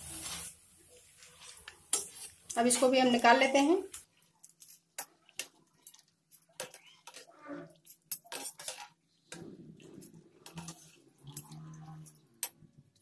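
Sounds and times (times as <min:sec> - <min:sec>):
metal utensils scraping a wok: 0:01.3 - 0:03.6, 0:06.4 - 0:12.6.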